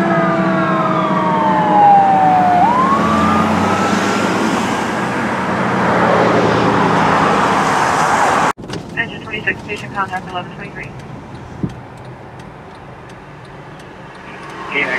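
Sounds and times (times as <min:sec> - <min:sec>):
fire engine siren wailing: 0:00.0 - 0:08.5
traffic and engine noise: 0:00.0 - 0:14.9.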